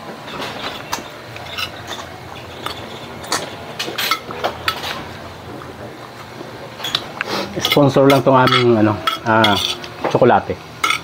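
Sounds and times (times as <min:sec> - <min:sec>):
low steady hum: 0:00.0 - 0:11.0
spoon clinking on ceramic plate: 0:07.6 - 0:09.8.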